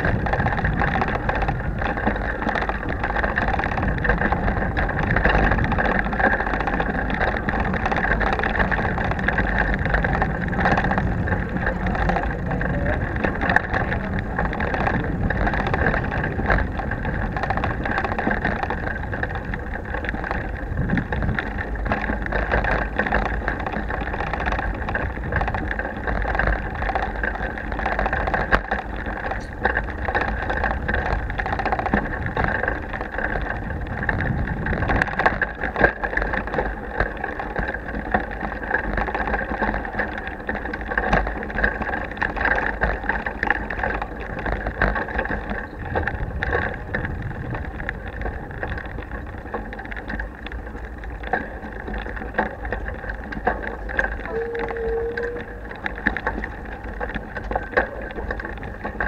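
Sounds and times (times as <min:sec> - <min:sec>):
bicycle rattling over cobblestones: 0:00.0 - 0:59.0.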